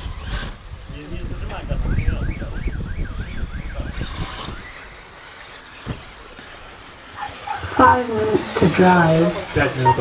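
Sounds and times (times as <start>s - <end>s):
siren warbling: 1.9s - 4.0s.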